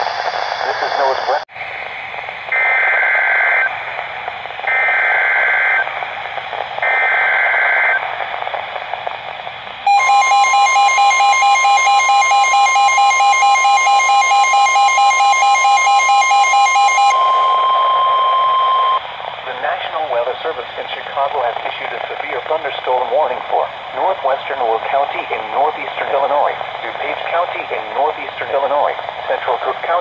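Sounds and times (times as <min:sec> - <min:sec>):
rapidly pulsing alert beep: 0:09.9 - 0:19.0
steady warning alarm tone: 0:09.9 - 0:19.1.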